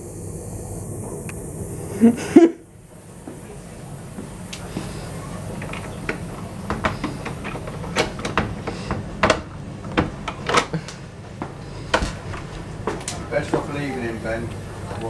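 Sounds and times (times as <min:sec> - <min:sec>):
steady low hum: 0:00.0 - 0:15.0
handling clicks and knocks: 0:05.6 - 0:13.3.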